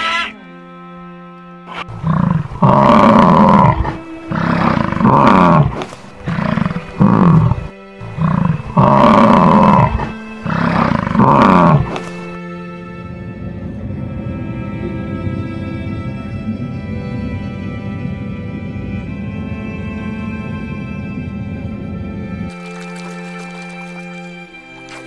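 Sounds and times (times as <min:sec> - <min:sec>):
background music: 0:00.0 - 0:25.0
big cat roaring: 0:01.7 - 0:12.2.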